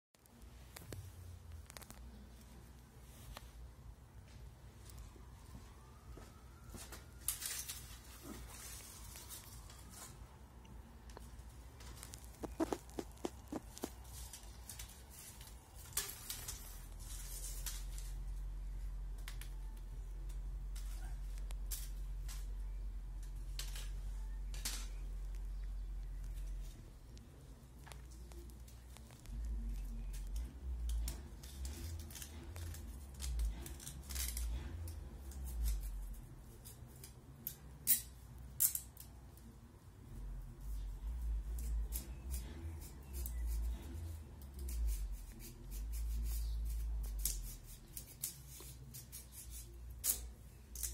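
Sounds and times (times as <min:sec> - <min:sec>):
sharp clicks and snaps: 0:10.6 - 0:16.5, 0:23.2 - 0:35.8
knife scraping and cutting sticks: 0:12.0 - 0:18.2, 0:29.7 - 0:39.1, 0:41.2 - 0:50.9
low steady rumble: 0:16.5 - 0:36.6.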